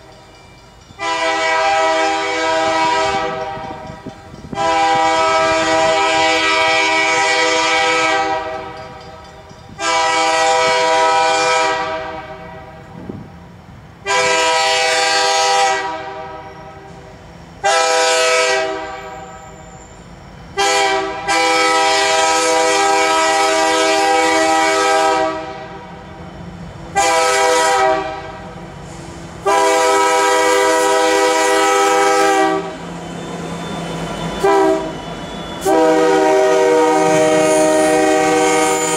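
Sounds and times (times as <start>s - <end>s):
locomotive passing rumble: 0.0s - 17.8s, 18.6s - 38.9s
locomotive air horn blasts: 1.0s - 3.9s, 4.5s - 8.8s, 9.8s - 12.9s, 14.0s - 17.0s, 17.6s - 19.6s, 20.5s - 25.9s, 26.9s - 28.5s, 29.4s - 32.8s, 34.4s - 35.0s, 35.6s - 38.9s.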